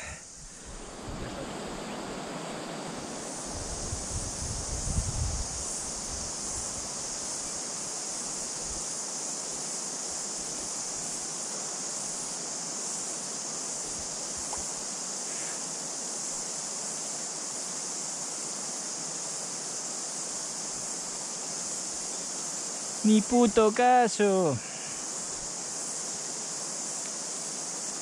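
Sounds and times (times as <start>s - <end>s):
cicadas droning: 0.0s - 28.0s
river running over stones: 23.0s - 24.6s.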